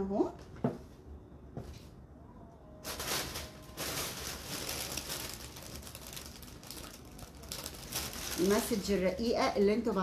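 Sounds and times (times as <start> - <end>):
paper and packaging rustling: 2.8 - 9.9.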